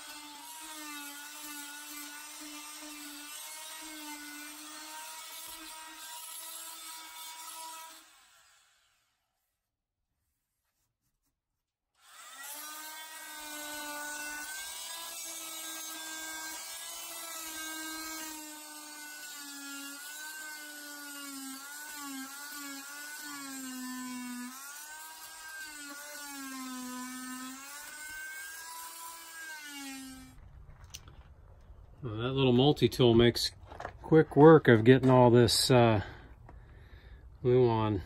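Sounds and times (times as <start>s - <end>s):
oscillating multi-tool buzzing: 0.0s - 9.3s, 12.0s - 30.4s.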